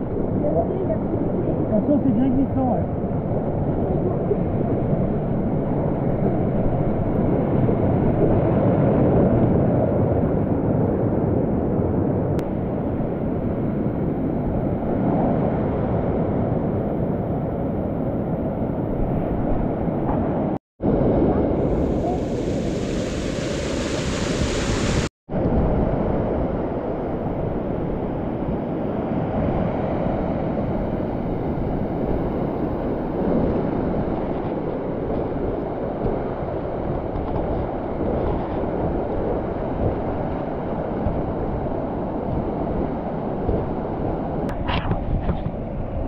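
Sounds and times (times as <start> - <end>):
mountain torrent rushing: 20.9 - 28.0
spray of falling water: 21.8 - 25.1.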